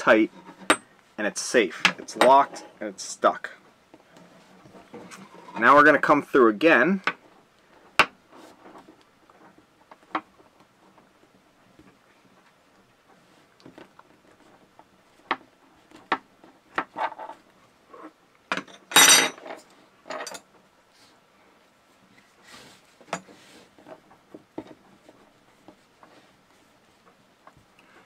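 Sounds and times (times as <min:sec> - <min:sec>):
metal tool clattering on wood: 0:00.3 - 0:00.9, 0:01.8 - 0:02.8, 0:18.5 - 0:20.5.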